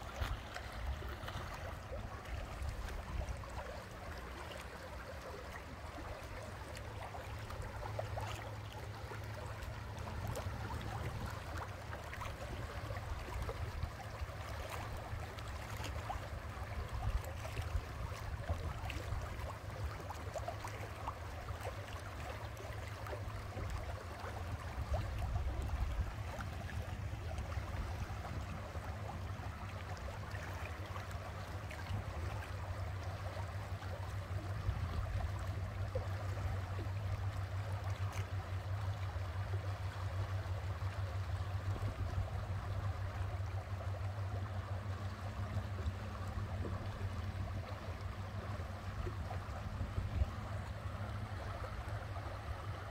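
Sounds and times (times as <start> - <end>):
boat engine hum: 0.0 - 52.9
water rushing along hull: 0.0 - 52.9.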